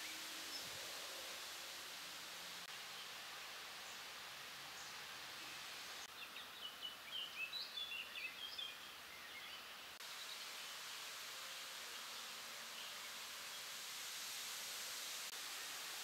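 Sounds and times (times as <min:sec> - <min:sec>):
outdoor background hiss: 0:00.0 - 0:16.0.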